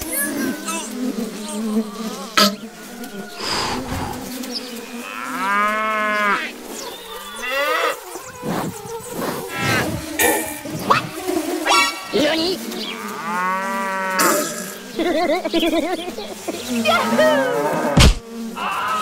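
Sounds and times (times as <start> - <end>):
cow mooing: 2.3 - 4.4.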